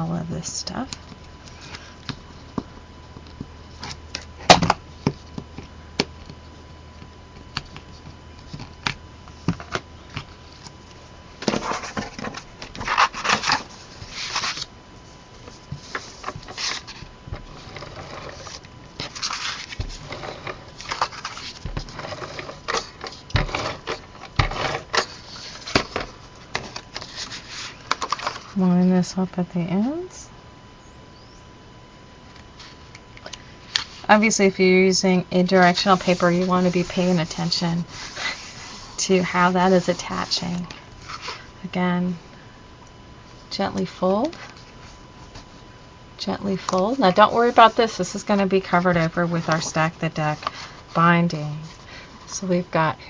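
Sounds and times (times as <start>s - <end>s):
paper rustling and sliding: 11.4s - 14.7s, 15.5s - 17.0s, 17.6s - 28.5s, 35.6s - 40.4s.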